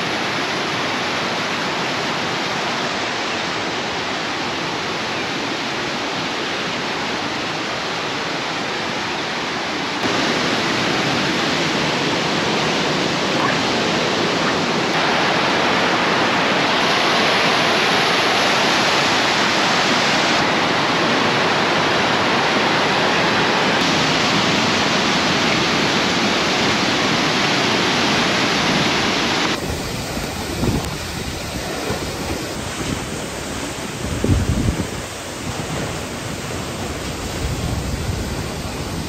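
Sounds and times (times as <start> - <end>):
waterfall rushing: 0.0 - 39.0
wind rumbling on microphone: 0.0 - 39.0.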